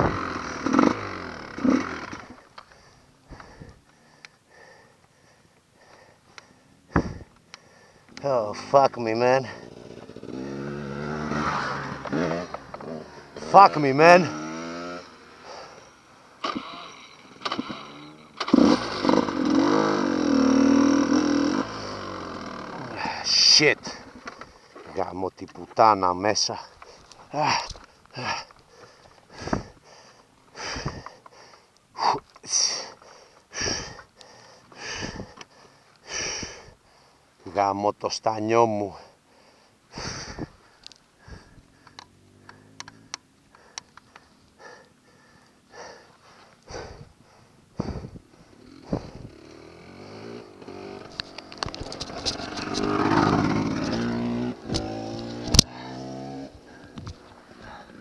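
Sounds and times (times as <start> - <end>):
dirt bike engine idling: 0.0 - 25.0, 26.2 - 37.3, 38.8 - 58.0
man breathing heavily: 2.2 - 8.2, 11.8 - 13.4, 15.3 - 16.4, 22.9 - 24.9, 26.5 - 37.4, 38.9 - 51.0, 55.2 - 58.0.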